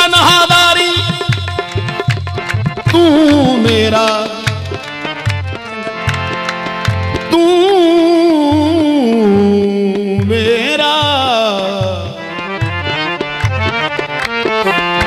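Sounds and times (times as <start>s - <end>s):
harmonium: 0.0s - 15.0s
low hand drum beat: 0.9s - 4.6s.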